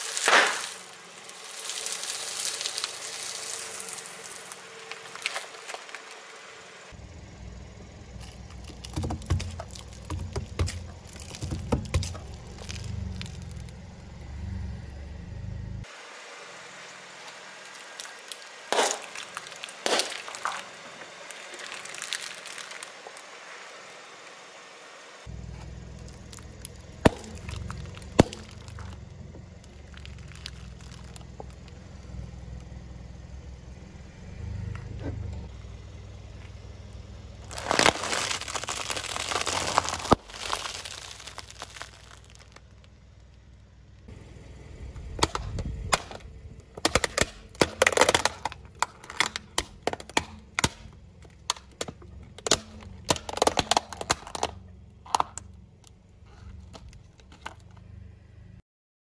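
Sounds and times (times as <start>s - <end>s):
tyre crushing plastic bottles: 0.0s - 6.4s, 8.2s - 13.8s, 17.2s - 23.3s, 25.7s - 29.0s, 29.6s - 31.8s, 37.4s - 42.9s, 45.2s - 55.5s
car low rumble: 0.0s - 58.6s.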